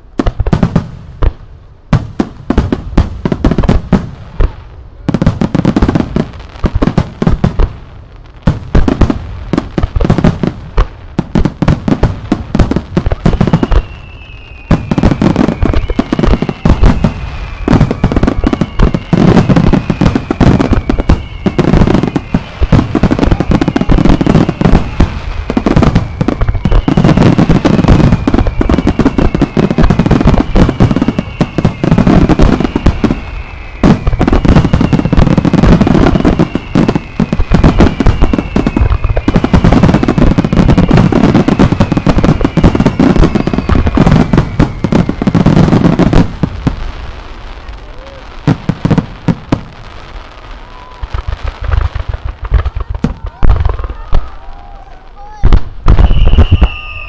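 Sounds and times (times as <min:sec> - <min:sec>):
fireworks booming and crackling: 0:00.0 - 0:57.0
falling firework whistles: 0:11.6 - 0:47.0, 0:50.6 - 0:57.0.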